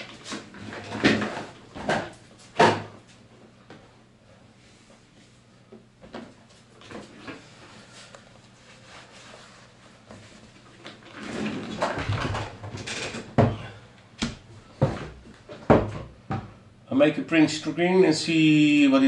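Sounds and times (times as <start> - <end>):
rustling and shuffling: 0.0 - 12.8.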